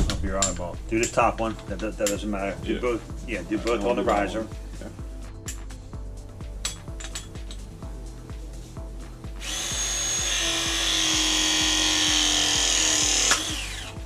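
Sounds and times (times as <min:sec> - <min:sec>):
background music with steady beat: 0:00.0 - 0:14.0
press tool motor running: 0:09.4 - 0:14.0.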